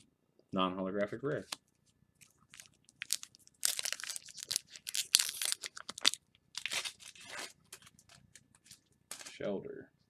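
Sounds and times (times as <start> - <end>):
foil wrapper tearing and crinkling: 2.5 - 7.6.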